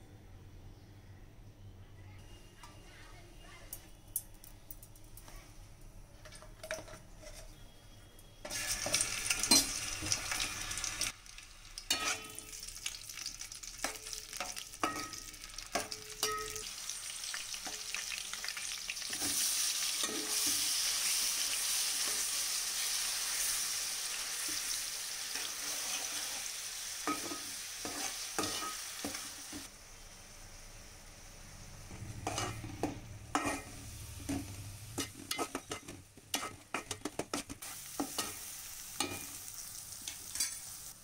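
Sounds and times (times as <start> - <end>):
chillies sizzling in hot oil: 2.2 - 41.0
onions frying: 3.6 - 41.0
spatula scraping a steel pan: 32.2 - 38.3.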